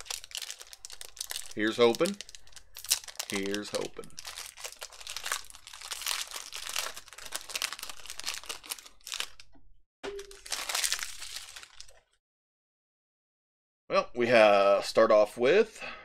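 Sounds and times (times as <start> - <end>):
foil wrapper crinkling and tearing: 0.0 - 9.5, 10.2 - 12.0.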